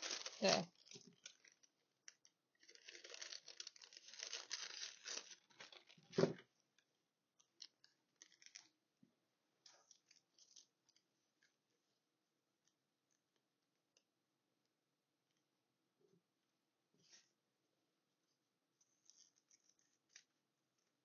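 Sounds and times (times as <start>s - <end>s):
thin paper rustling and crinkling: 0.0s - 1.6s, 2.6s - 6.4s.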